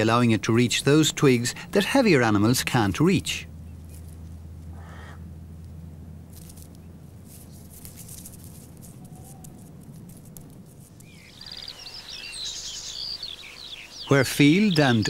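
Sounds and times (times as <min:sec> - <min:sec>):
steady low hum: 0:00.0 - 0:15.0
animal rustling in dry twigs: 0:03.7 - 0:04.8, 0:06.2 - 0:13.8
songbirds chirping and singing: 0:11.0 - 0:15.0.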